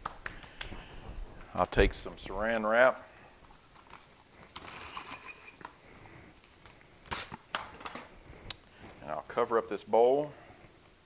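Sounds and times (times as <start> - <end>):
cling wrap pulled off roll: 3.5 - 8.2
cling wrap tearing with crackling: 6.4 - 7.7.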